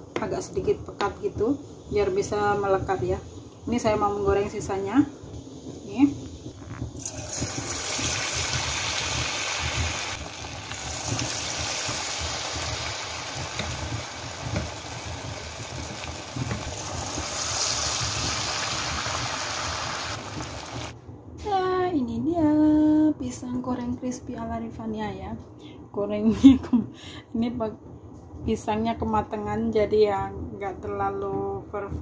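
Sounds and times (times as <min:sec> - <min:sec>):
food sizzling in frying oil: 0:06.9 - 0:21.0.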